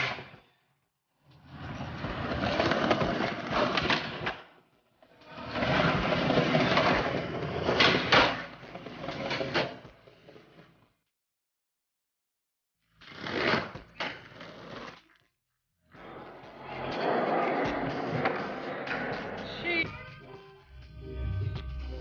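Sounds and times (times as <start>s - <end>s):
skateboard wheels rolling on concrete: 1.4s - 4.6s, 5.2s - 10.8s, 13.0s - 15.2s, 15.9s - 19.7s.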